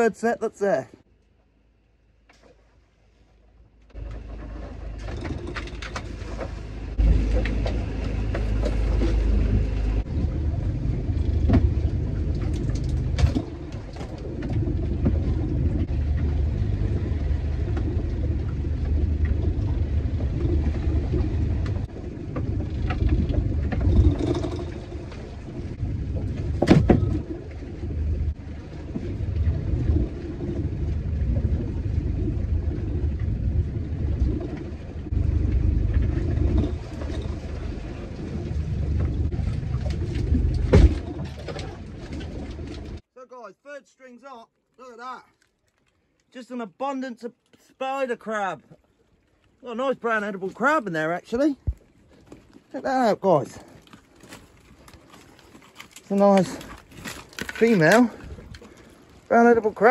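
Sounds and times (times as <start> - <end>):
boat engine droning: 3.0 - 43.0.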